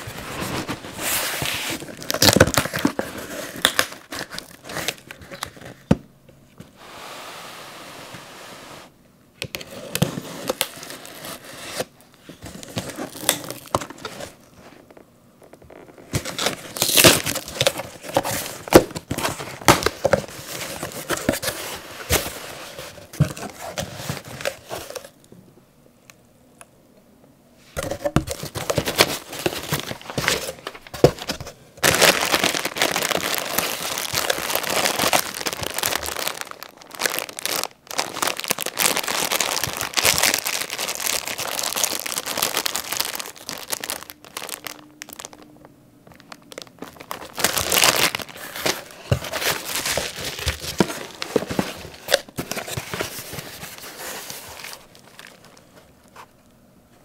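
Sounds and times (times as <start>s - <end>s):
cardboard sliding and rubbing: 0.0s - 2.0s, 6.8s - 8.9s
bubble wrap crinkling: 0.0s - 5.9s, 9.8s - 25.2s, 28.0s - 56.4s
plastic packaging crinkling: 0.0s - 5.9s, 9.6s - 25.2s, 27.8s - 56.5s.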